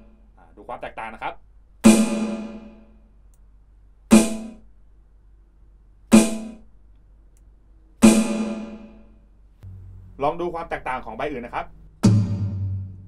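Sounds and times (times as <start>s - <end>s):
electronic snare drum hits: 1.8s - 2.8s, 4.1s - 4.6s, 6.1s - 6.7s, 8.0s - 9.0s, 12.0s - 13.0s.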